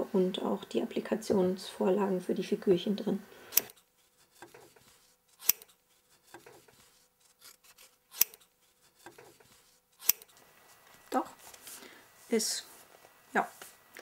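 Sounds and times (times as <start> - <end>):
scissors snipping: 3.5 - 10.4
faint rustling and rubbing: 3.8 - 14.0.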